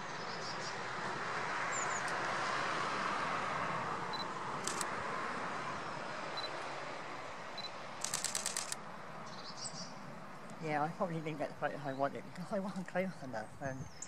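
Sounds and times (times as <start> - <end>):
camera shutter clicks: 4.6 - 4.9, 8.0 - 8.8.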